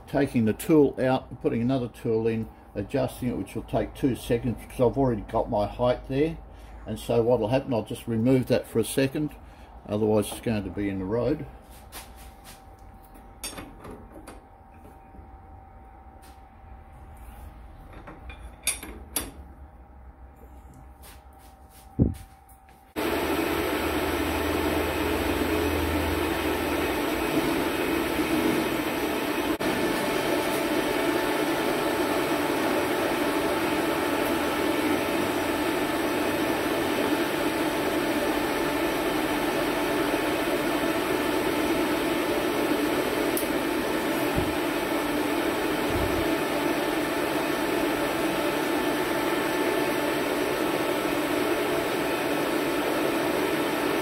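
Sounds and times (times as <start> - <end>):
metal lathe running: 23.0 - 54.0.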